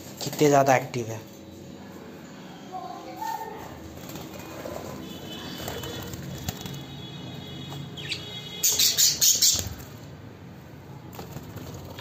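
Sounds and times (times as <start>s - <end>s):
budgies flapping wings: 3.9s - 7.1s, 11.1s - 12.0s.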